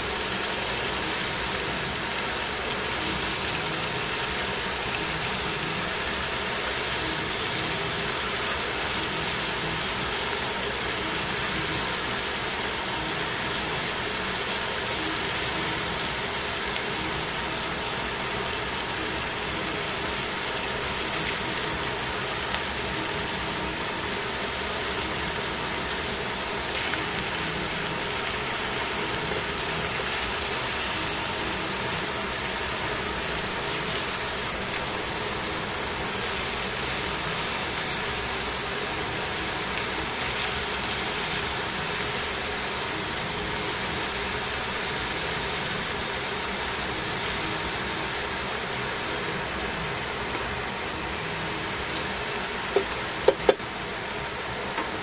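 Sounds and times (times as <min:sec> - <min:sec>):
food sizzling in frying pan: 0:00.0 - 0:55.0
tongs clicking on pan: 0:52.7 - 0:53.6.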